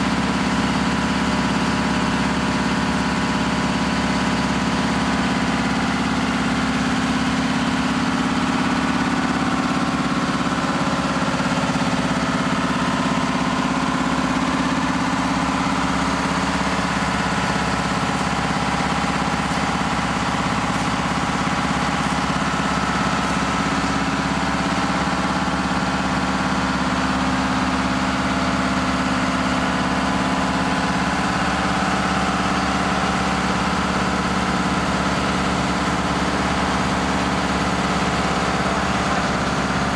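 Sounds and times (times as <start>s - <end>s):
fire engine pump running: 0.0s - 39.9s
water spraying from nozzle: 15.5s - 25.0s.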